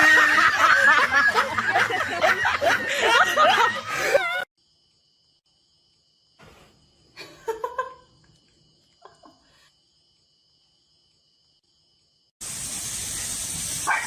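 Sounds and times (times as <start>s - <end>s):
laughter: 0.0s - 4.5s, 7.2s - 8.1s, 9.0s - 9.7s.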